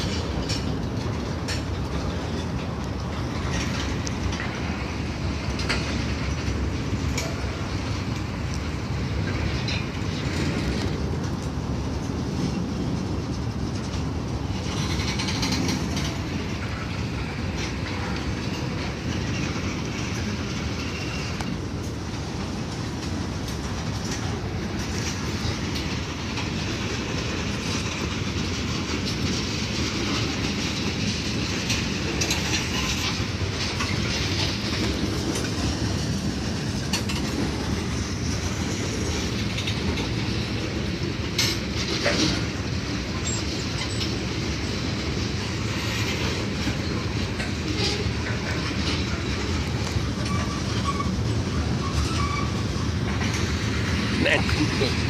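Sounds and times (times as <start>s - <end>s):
train wheels rolling on rails: 0.0s - 55.0s.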